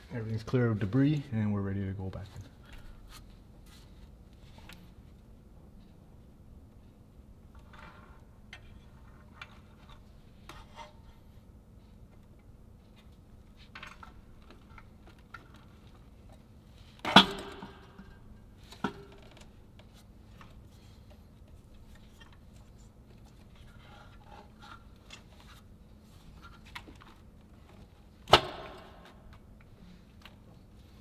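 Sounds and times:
sharp metal knocks: 17.0s - 18.0s.

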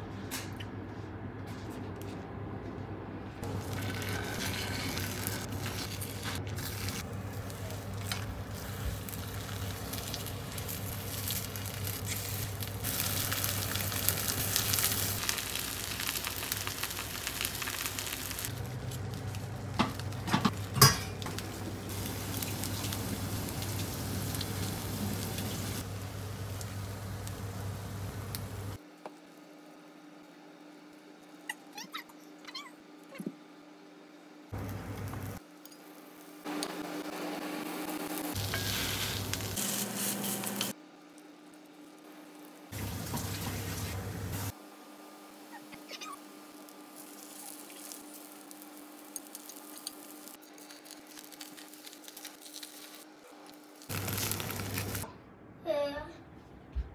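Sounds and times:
food sizzling in a pan: 3.4s - 28.8s, 35.2s - 40.8s, 42.4s - 44.6s, 45.2s - 55.1s.

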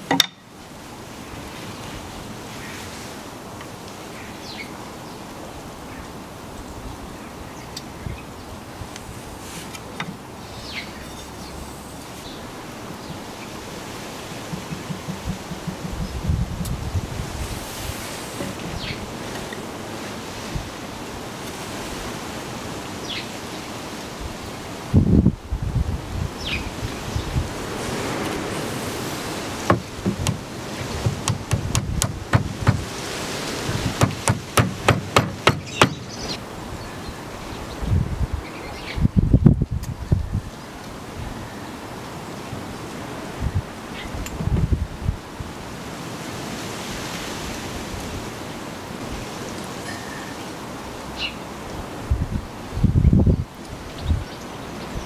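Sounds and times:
wind noise: 5.5s - 22.8s, 24.1s - 41.6s, 42.6s - 49.4s, 51.7s - 55.0s
rubber mallet knocking on wood: 14.5s - 16.7s, 29.7s - 32.9s, 33.9s - 36.1s.

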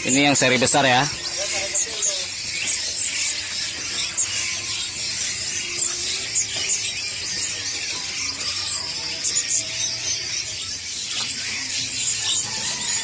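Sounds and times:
songbirds chirping and twittering: 0.0s - 13.0s.

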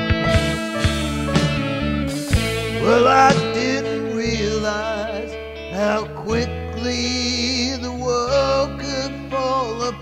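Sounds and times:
guitar accompaniment: 0.0s - 10.0s
low bass notes: 0.0s - 10.0s
man singing: 2.3s - 10.0s.

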